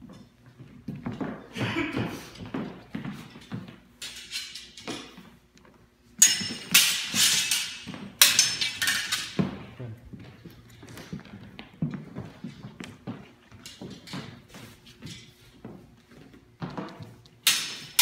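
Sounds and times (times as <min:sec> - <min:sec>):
footsteps on wooden floor: 0:00.0 - 0:03.9, 0:09.4 - 0:17.4
steel swords clashing: 0:04.0 - 0:05.2, 0:06.2 - 0:09.5, 0:17.4 - 0:18.0.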